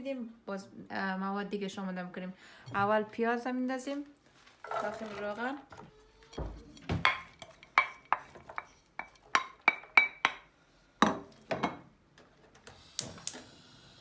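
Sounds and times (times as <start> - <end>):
wooden spoon knocking and scraping: 4.6 - 11.8.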